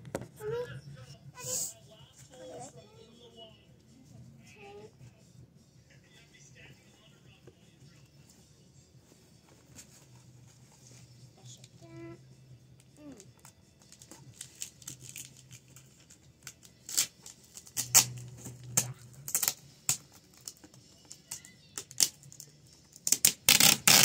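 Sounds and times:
tape ripping: 13.9s - 20.7s, 21.3s - 24.0s.

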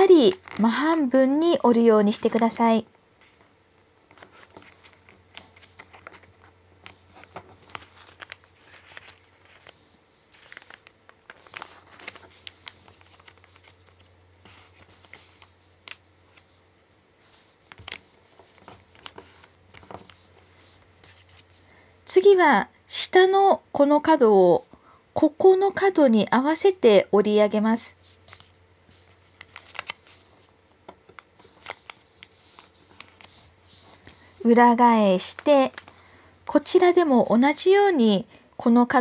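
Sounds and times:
paper rustling and crinkling: 0.0s - 1.2s, 4.1s - 16.6s, 17.2s - 21.7s, 28.0s - 34.6s.

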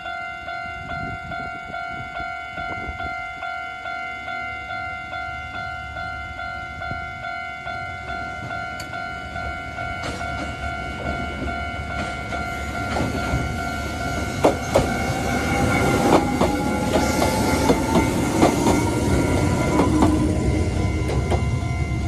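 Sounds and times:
train whine: 0.0s - 22.0s
train wheels clacking on rail joints: 9.8s - 21.6s.

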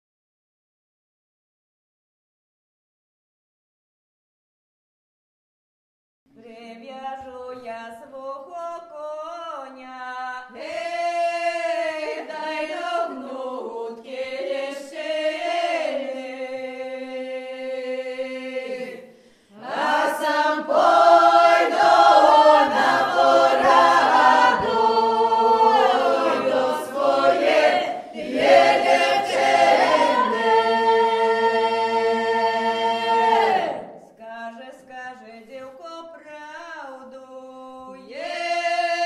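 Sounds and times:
unaccompanied group singing: 9.7s - 36.2s, 37.5s - 39.0s.

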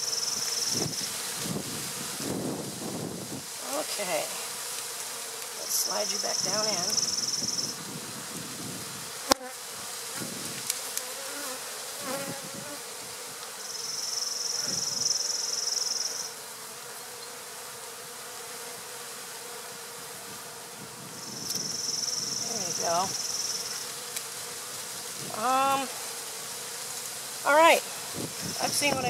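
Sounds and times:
bees buzzing: 0.0s - 29.0s
high hiss: 21.0s - 29.0s.

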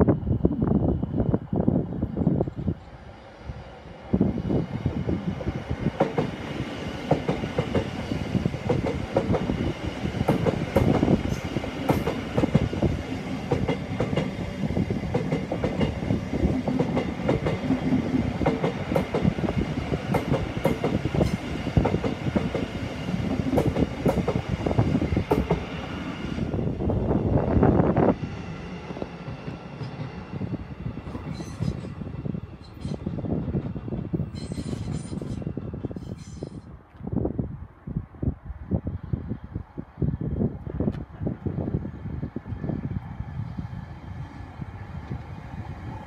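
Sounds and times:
train wheels clattering over rail joints: 10.2s - 14.4s, 15.1s - 22.7s.

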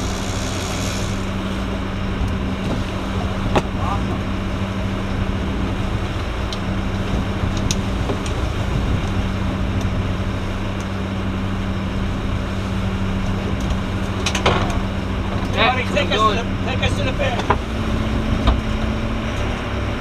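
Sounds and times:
wake and wind hiss: 0.0s - 10.7s
boat engine low hum: 0.0s - 20.0s.

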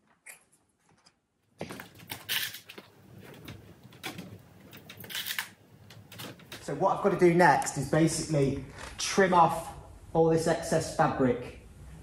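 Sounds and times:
fabric rustling and rubbing: 1.7s - 6.7s.

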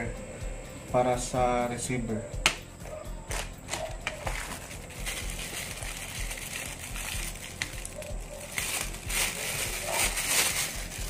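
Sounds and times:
plastic bag crinkling: 3.3s - 11.0s.

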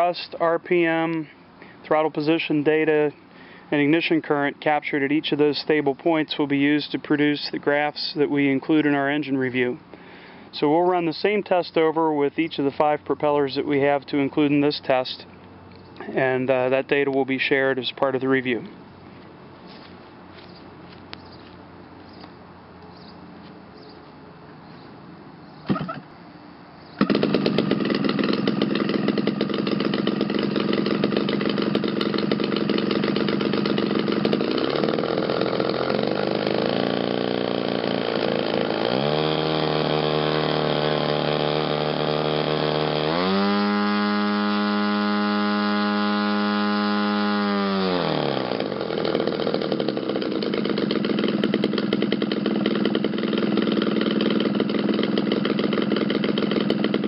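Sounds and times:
two-stroke model aircraft engine: 25.7s - 26.0s, 27.0s - 57.0s.

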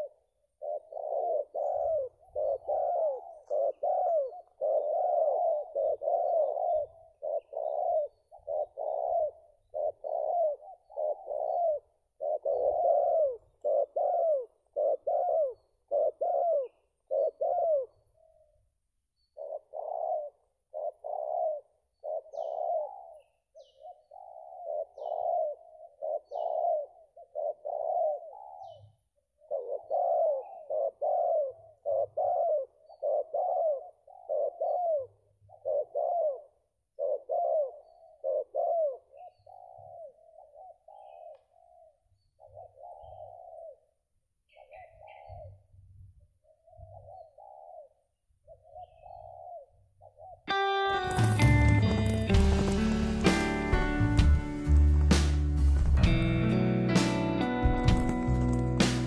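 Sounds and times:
doves cooing: 0.0s - 18.6s, 19.4s - 43.9s, 46.5s - 55.2s, 55.8s - 59.0s.

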